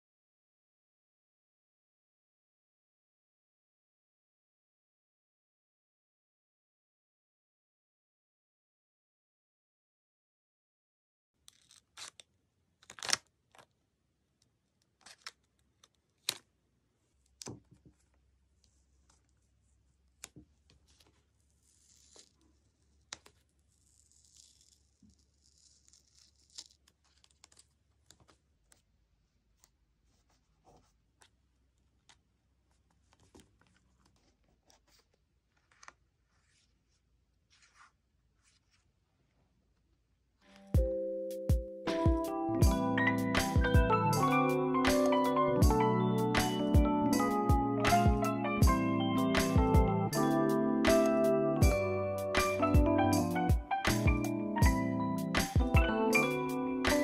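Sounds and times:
paper stickers peeling and rustling: 11.4 - 13.7, 14.8 - 16.5, 20.1 - 28.8, 29.5 - 38.8
scissors snipping paper: 11.4 - 13.7, 14.8 - 16.5, 20.1 - 28.9.

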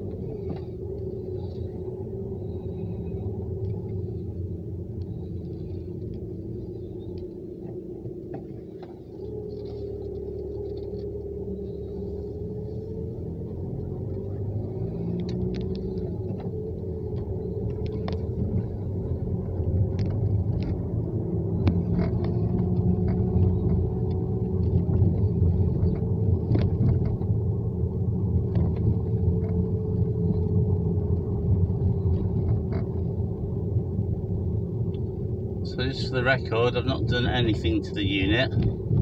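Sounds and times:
car engine rumble inside cabin: 0.0 - 39.0.

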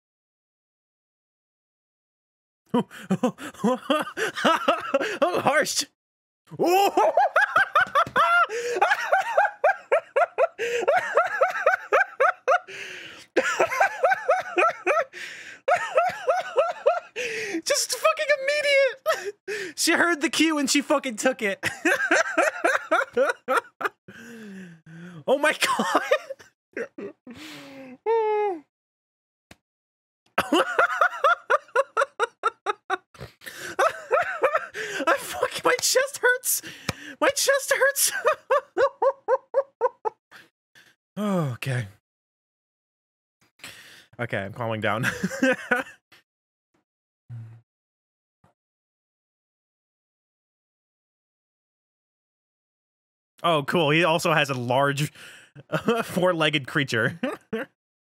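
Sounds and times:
man laughing hard: 2.8 - 5.5, 6.5 - 19.7, 21.6 - 27.4, 30.4 - 40.5, 45.0 - 46.0, 55.6 - 56.2, 57.0 - 57.7.

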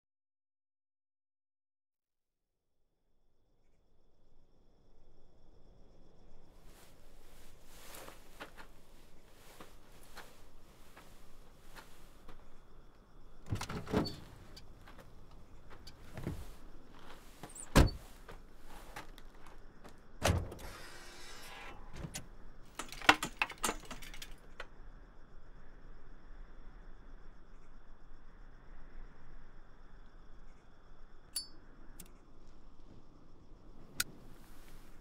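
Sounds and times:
rustling scrape: 6.6 - 12.6, 14.1 - 19.5.

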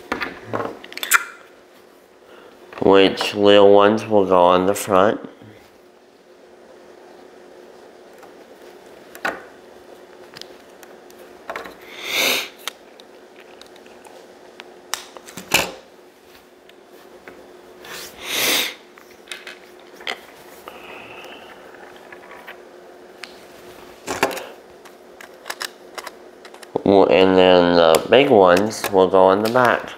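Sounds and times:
low room hum: 0.0 - 29.9
person breathing: 2.2 - 2.7, 11.8 - 12.6, 20.6 - 21.8.

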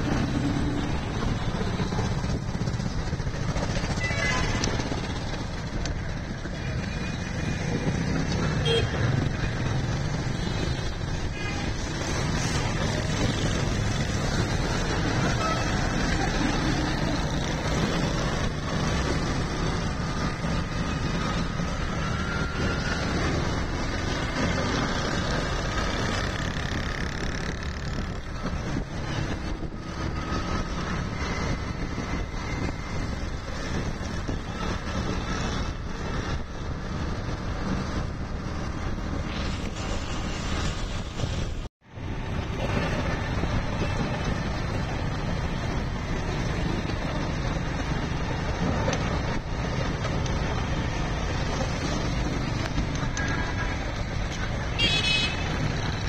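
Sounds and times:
surrounding motorcycles: 0.0 - 56.0
vehicle engine and wind rush: 0.0 - 56.0.

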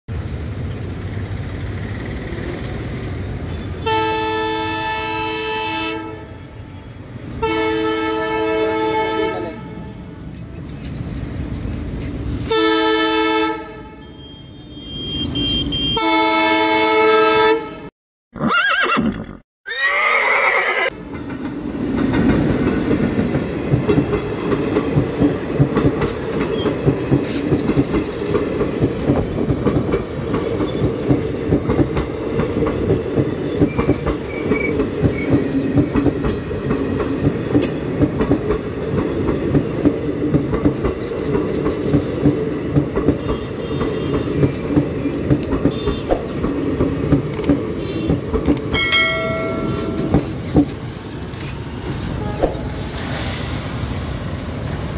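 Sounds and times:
train coaches rumbling past: 0.1 - 17.9, 20.9 - 54.9
train horn blast: 3.8 - 6.8, 7.4 - 10.2, 12.4 - 17.9
wheels clacking over rail joints: 21.0 - 54.0.

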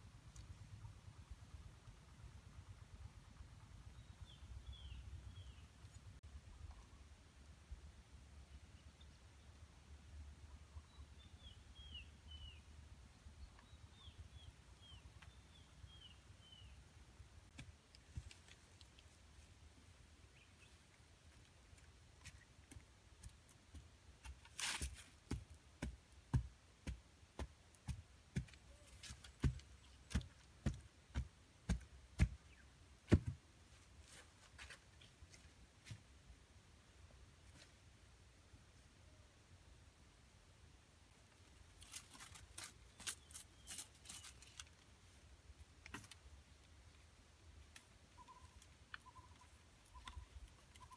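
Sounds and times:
faint bird chirps: 10.4 - 16.8, 47.9 - 50.9
wooden stake pounded into ground: 33.1 - 33.4.

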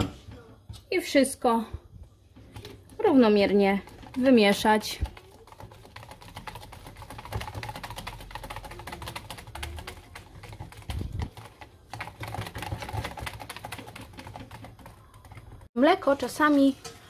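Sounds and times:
whisk clicking against jug: 2.5 - 15.7.

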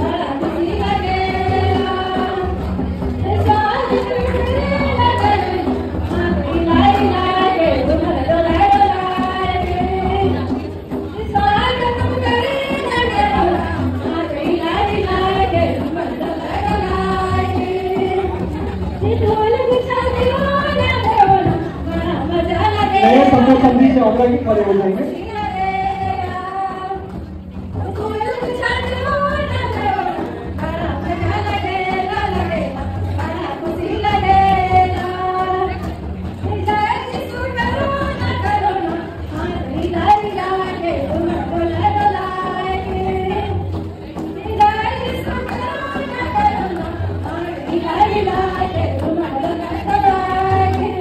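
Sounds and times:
women singing together: 0.0 - 23.5, 25.0 - 27.2, 27.8 - 51.0
music: 0.0 - 51.0
people talking: 22.9 - 25.4.

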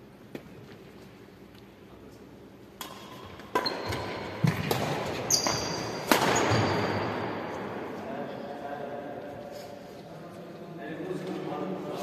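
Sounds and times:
badminton rackets hitting shuttlecock: 2.7 - 7.2
shoes squeaking on wooden floor: 3.6 - 7.0.

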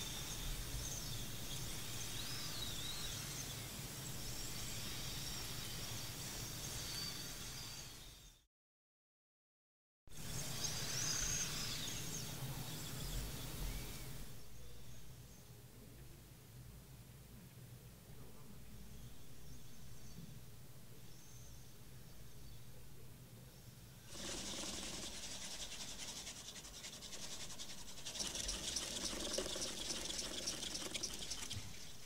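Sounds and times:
robotic arm motors clicking: 24.2 - 32.0.

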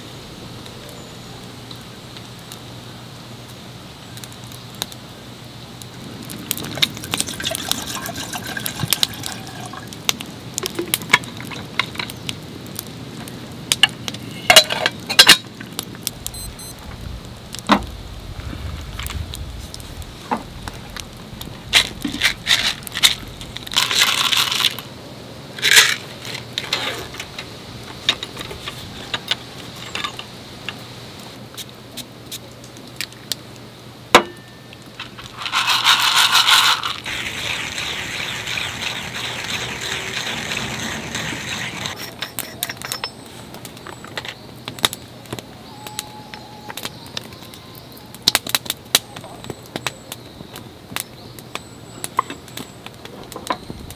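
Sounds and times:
metal cups clinking: 7.1 - 9.9, 41.9 - 43.2
soft rustle: 16.1 - 24.8
short hissing rushes: 36.7 - 42.0.

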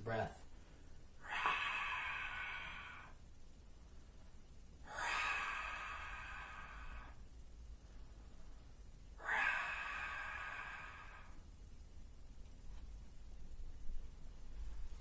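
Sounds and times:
man exhaling forcefully: 1.2 - 3.2, 4.9 - 7.2, 9.2 - 11.4.

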